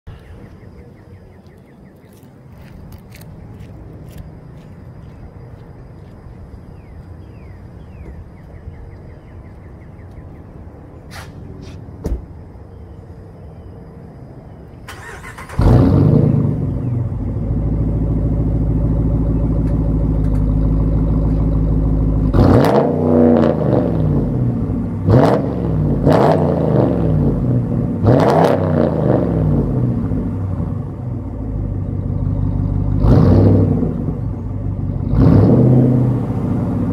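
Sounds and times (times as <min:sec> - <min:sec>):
engine cranking: 0:14.9 - 0:15.8
engine revving: 0:14.9 - 0:31.0, 0:32.4 - 0:36.9.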